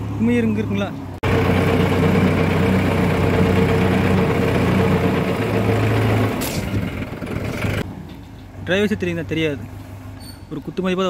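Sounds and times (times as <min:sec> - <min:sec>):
tractor diesel engine running: 0:00.0 - 0:07.9.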